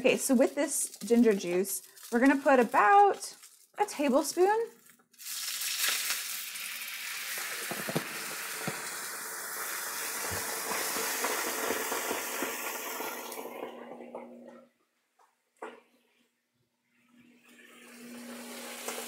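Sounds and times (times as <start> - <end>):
popping in the pan: 0.0 - 14.4
liquid sizzling in a frying pan: 5.1 - 13.9, 17.8 - 19.0.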